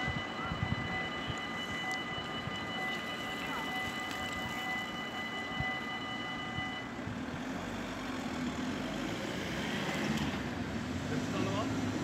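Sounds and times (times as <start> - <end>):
railroad crossing bell ringing: 0.0 - 7.2
road vehicles rumbling: 0.0 - 12.0.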